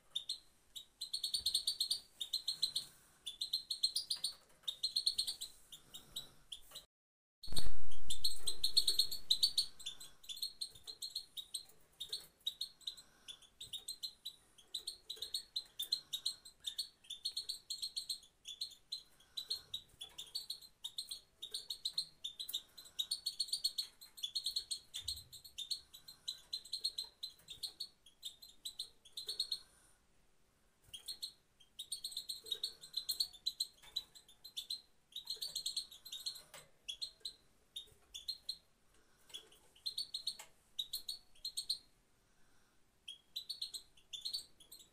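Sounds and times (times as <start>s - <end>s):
goldfinch chirping: 0.1s - 6.9s, 7.5s - 29.8s, 30.8s - 41.9s, 43.0s - 44.9s.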